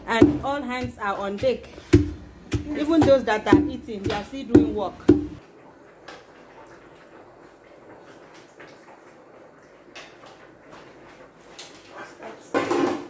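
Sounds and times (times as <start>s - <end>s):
spoon knocking on pot: 0.0s - 5.4s.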